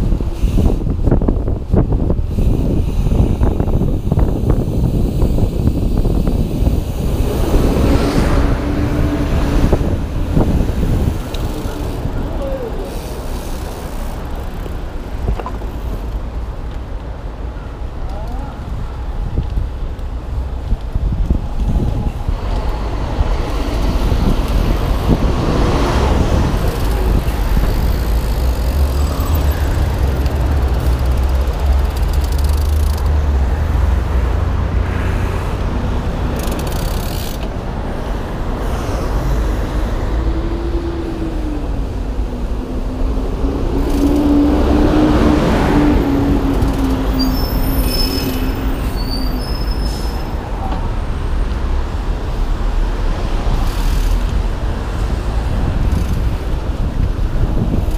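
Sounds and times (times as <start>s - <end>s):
bike rolling on pavement: 0.0s - 57.9s
road traffic: 0.0s - 57.9s
passing vehicle engine drone: 6.6s - 14.4s, 37.6s - 48.9s.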